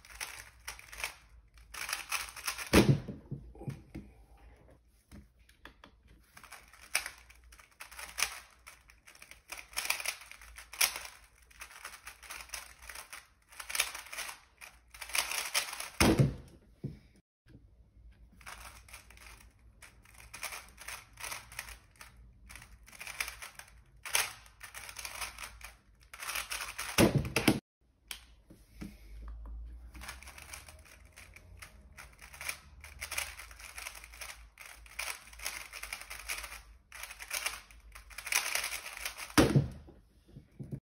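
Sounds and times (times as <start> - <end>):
speed cube plastic clicks: 0.1 - 2.7, 6.4 - 16.0, 18.4 - 27.0, 30.0 - 39.4.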